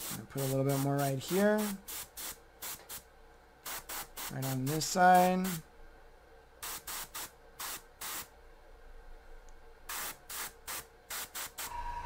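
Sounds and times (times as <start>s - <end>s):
airbrush spraying in short bursts: 0.0s - 5.6s, 6.6s - 8.3s, 9.9s - 11.8s.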